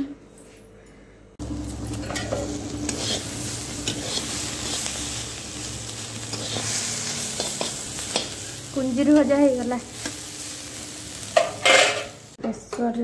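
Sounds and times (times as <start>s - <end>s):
vegetables sizzling in oil: 1.4s - 12.4s
metal spatula scraping pan: 2.1s - 5.0s, 6.2s - 8.4s, 11.3s - 12.2s.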